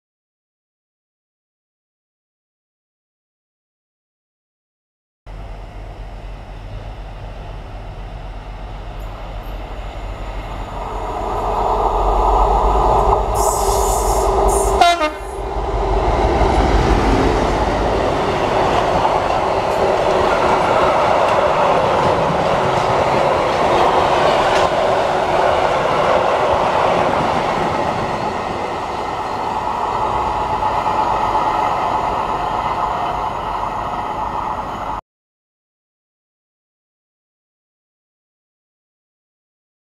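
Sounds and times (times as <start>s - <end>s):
diesel locomotive engine: 5.3s - 35.0s
locomotive two-tone horn: 13.4s - 15.5s
wheels clattering on rails: 15.3s - 31.6s.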